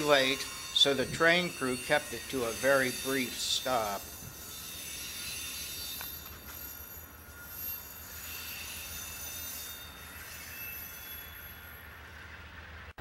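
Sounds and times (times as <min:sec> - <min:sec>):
train wheels squealing: 0:00.0 - 0:12.8
train low rumble: 0:11.1 - 0:13.0.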